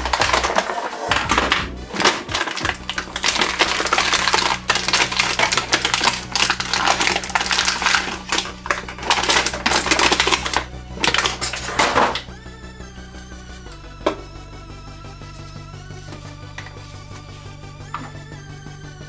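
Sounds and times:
foam tray creaking and scraping: 0:00.0 - 0:12.2.

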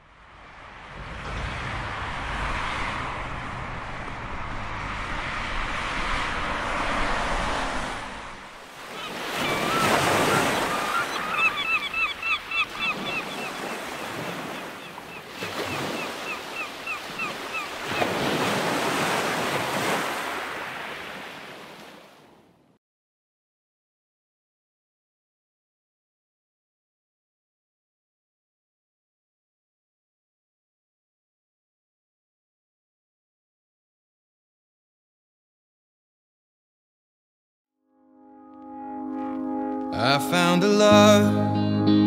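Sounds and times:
low rumble: 0:00.0 - 0:08.6
surf washing onto beach: 0:00.4 - 0:22.2.

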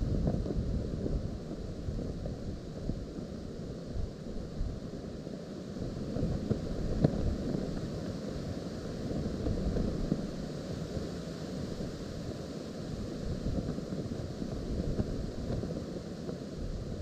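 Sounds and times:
wind buffeting microphone: 0:00.0 - 0:03.3, 0:13.2 - 0:16.0
cloth flapping in wind: 0:12.9 - 0:17.0.

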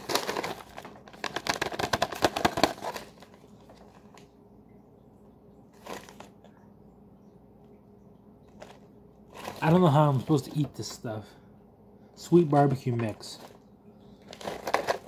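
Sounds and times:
paper packet crinkling: 0:00.0 - 0:04.4, 0:05.7 - 0:06.5, 0:08.4 - 0:11.0, 0:14.2 - 0:15.0.

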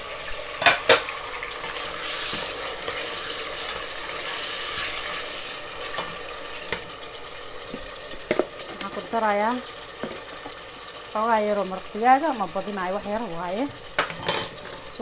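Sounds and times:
tomatoes sizzling in oil: 0:00.0 - 0:15.0
wooden spoon stirring: 0:01.6 - 0:06.9.

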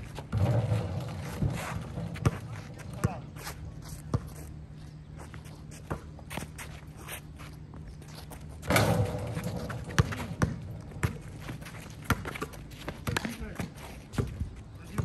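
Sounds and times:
footsteps on court: 0:00.0 - 0:15.0
basketball bouncing on court: 0:00.3 - 0:03.3, 0:08.7 - 0:15.0.

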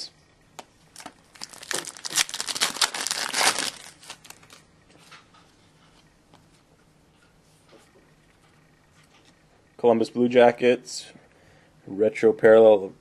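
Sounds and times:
cards rustling: 0:00.9 - 0:04.6
foil wrapper crinkling and tearing: 0:00.9 - 0:04.6.

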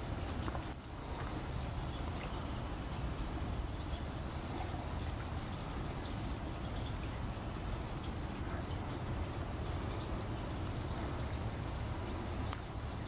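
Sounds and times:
water lapping and splashing: 0:00.0 - 0:13.0
faint ticks: 0:12.4 - 0:12.7.

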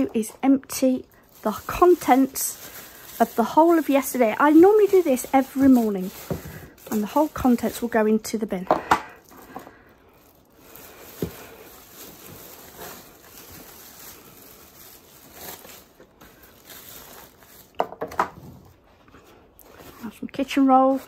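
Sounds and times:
plastic bin bag rustling: 0:00.0 - 0:21.0.

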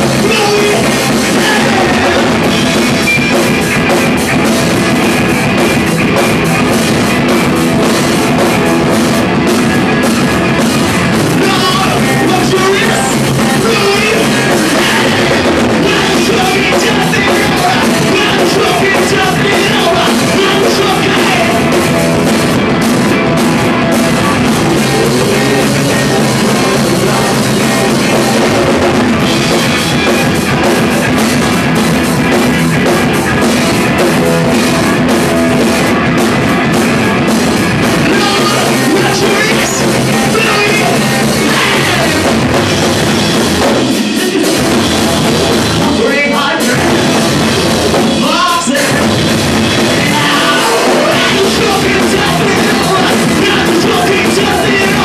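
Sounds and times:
person singing: 0:00.0 - 0:02.9, 0:11.3 - 0:22.1, 0:23.6 - 0:30.1, 0:38.0 - 0:42.9, 0:43.8 - 0:47.5, 0:48.1 - 0:55.0
bass guitar: 0:00.0 - 0:55.0
distorted electric guitar: 0:00.0 - 0:55.0
drum kit: 0:00.0 - 0:55.0.

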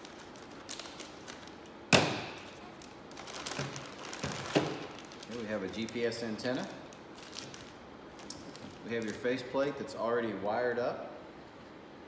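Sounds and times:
plastic bags rustling: 0:00.0 - 0:01.7, 0:02.3 - 0:09.5.

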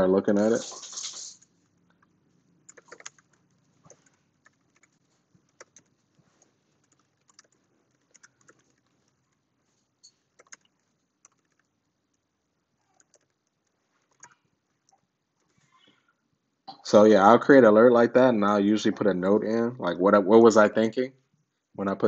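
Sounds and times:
faint keyboard typing: 0:00.0 - 0:16.2.

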